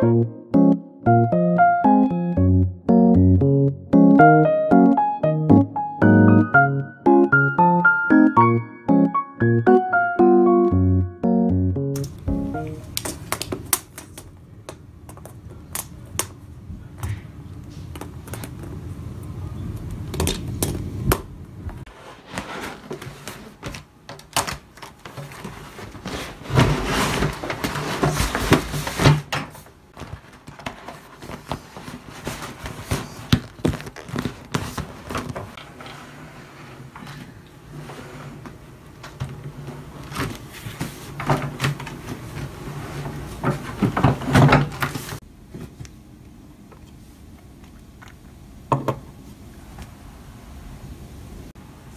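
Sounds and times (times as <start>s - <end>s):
vinyl sheet crinkling and rustling: 21.9s - 35.7s.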